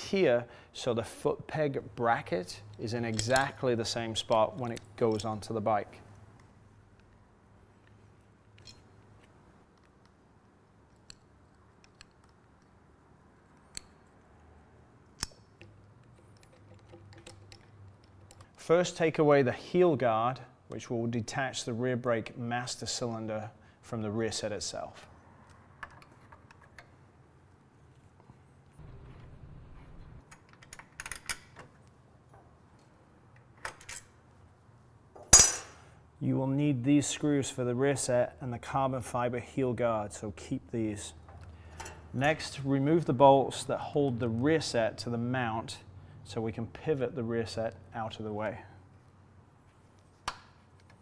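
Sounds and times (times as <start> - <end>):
metallic clicks and taps: 7.8 - 12.8, 13.5 - 14.2, 15.0 - 18.6.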